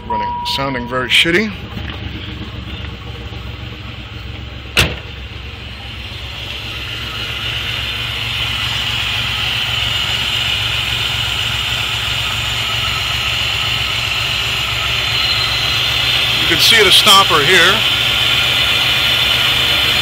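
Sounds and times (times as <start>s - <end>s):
car engine idling roughly: 0.6s - 20.0s
sharp knock: 4.8s - 5.1s.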